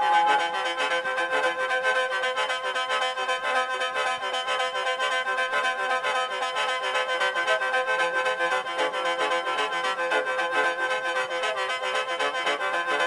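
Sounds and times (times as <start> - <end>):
mouth organ melody with drone: 0.0 - 1.7.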